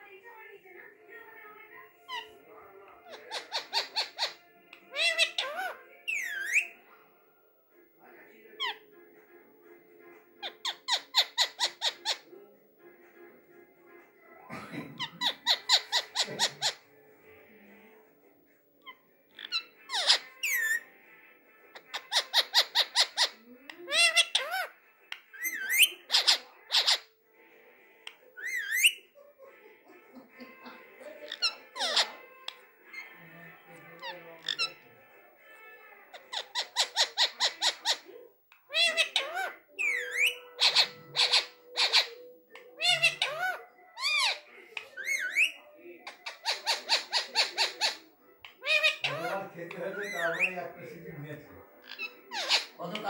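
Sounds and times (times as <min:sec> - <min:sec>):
parakeet squawking: 0:02.1 - 0:02.4, 0:03.0 - 0:06.8, 0:08.6 - 0:08.8, 0:10.4 - 0:12.3, 0:15.0 - 0:16.9, 0:18.8 - 0:21.0, 0:21.7 - 0:27.2, 0:28.1 - 0:29.2, 0:30.8 - 0:51.0, 0:51.7 - 0:53.0.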